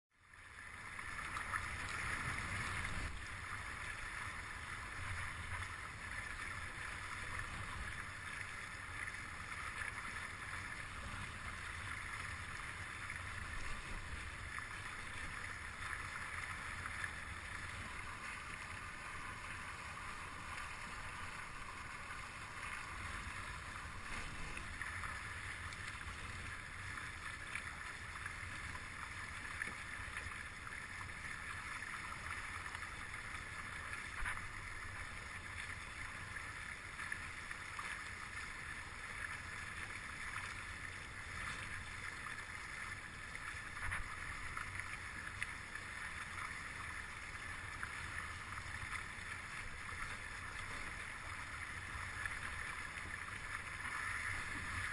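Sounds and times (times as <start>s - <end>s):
water rushing past hulls: 0.4s - 54.9s
wind rumble on microphone: 1.2s - 9.6s.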